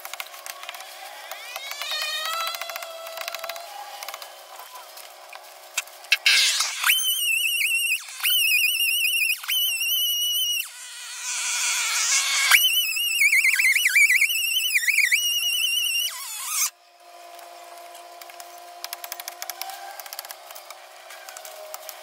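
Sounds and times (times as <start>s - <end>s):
brush crackling being handled: 0.0s - 10.1s
power tool whining cutting wood: 0.4s - 21.8s.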